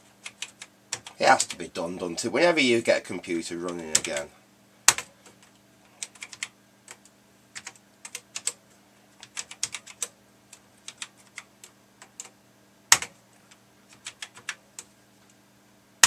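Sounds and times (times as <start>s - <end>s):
faint steady hum: 0.0s - 16.0s
keyboard keystroke clicks: 12.9s - 13.1s.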